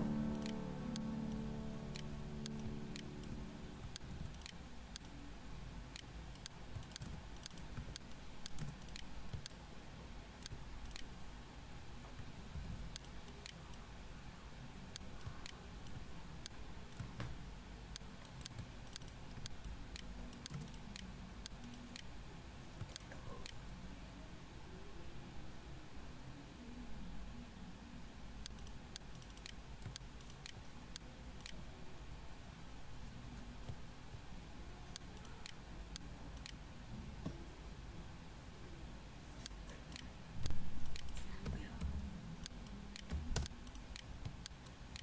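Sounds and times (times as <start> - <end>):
faint low hum: 0.0 - 45.0
mouse and keyboard clicks: 18.0 - 22.1, 39.4 - 45.0.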